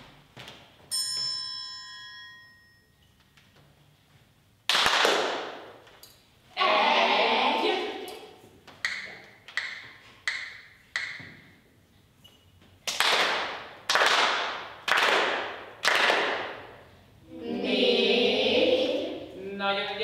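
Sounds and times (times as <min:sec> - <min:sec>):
ringing percussion strikes: 0:00.9 - 0:03.2.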